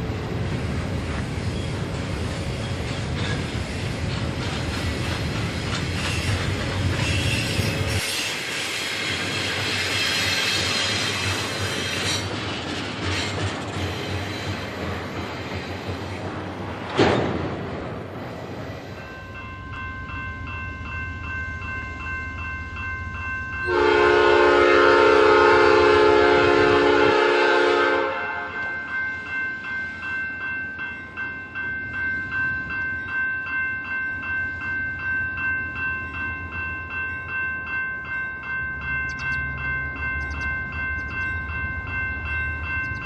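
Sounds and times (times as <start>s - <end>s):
train wheels on rails: 0.0s - 43.0s
diesel locomotive horn: 23.6s - 28.8s.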